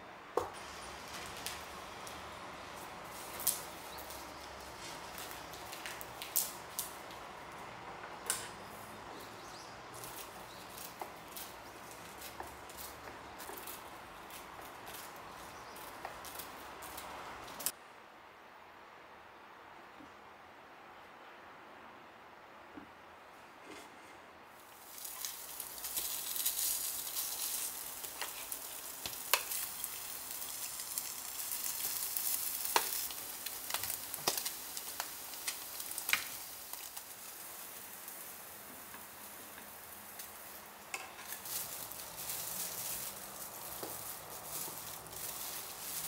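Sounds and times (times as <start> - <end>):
meat sizzling in a pan: 24.6 - 46.0.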